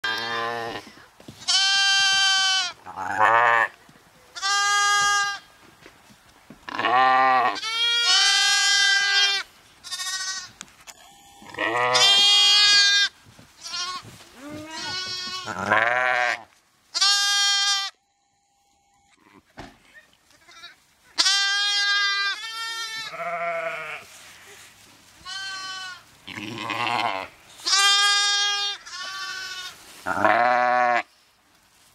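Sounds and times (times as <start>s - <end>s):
lambs baaing: 0.0s - 3.8s, 4.4s - 5.5s, 6.7s - 10.5s, 11.4s - 17.9s, 20.4s - 24.1s, 25.2s - 31.1s.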